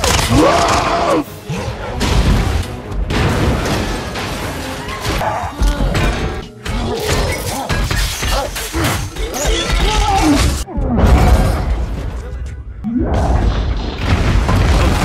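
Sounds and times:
action movie music: 0:00.0 - 0:15.0
crashing and smashing impacts: 0:13.3 - 0:15.0.

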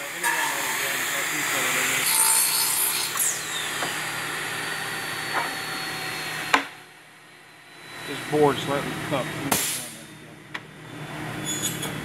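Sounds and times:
circular saw cutting wood: 0:00.0 - 0:06.9, 0:07.7 - 0:10.2.

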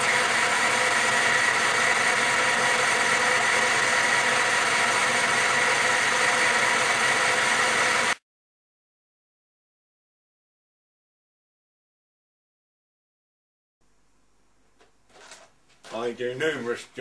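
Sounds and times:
lathe machine whine: 0:00.0 - 0:08.2.

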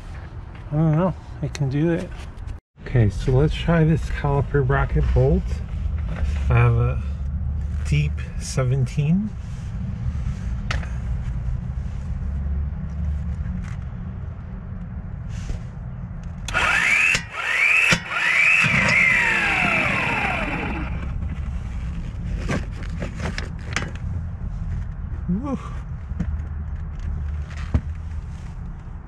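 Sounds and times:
steady low hum: 0:02.8 - 0:29.0
impact wrench running: 0:16.5 - 0:21.2.

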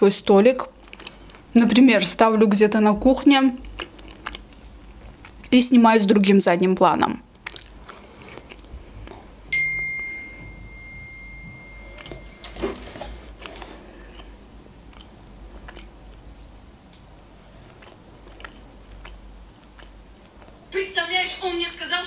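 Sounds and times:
quiet chewing with mouth clicks: 0:00.6 - 0:01.5, 0:03.5 - 0:05.6, 0:07.3 - 0:09.5, 0:11.5 - 0:20.7
phone notification chime: 0:09.5 - 0:12.7.

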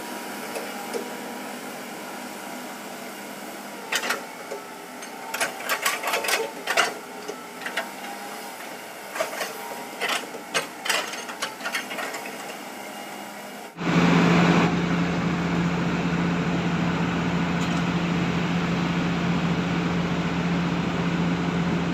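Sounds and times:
excavator clanks and knocks: 0:03.9 - 0:08.2, 0:09.1 - 0:12.6, 0:17.6 - 0:18.0.

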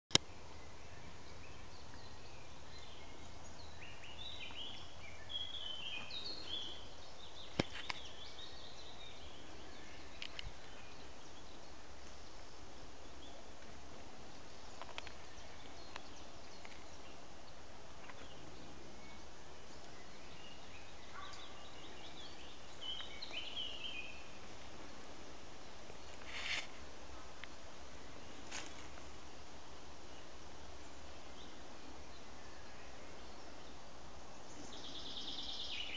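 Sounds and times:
small birds chirping: 0:00.1 - 0:35.9
steady background hiss: 0:00.1 - 0:35.9.

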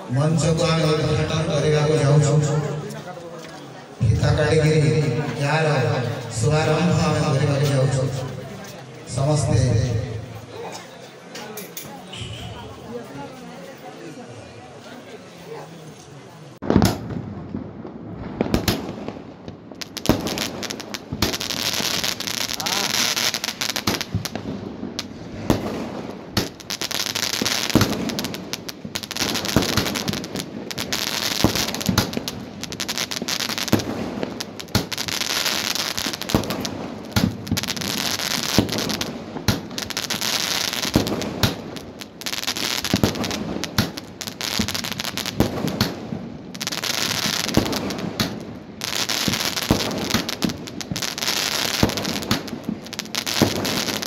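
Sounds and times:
firework bangs and pops: 0:16.6 - 0:54.0
crackling hiss of sparks: 0:19.7 - 0:24.4.

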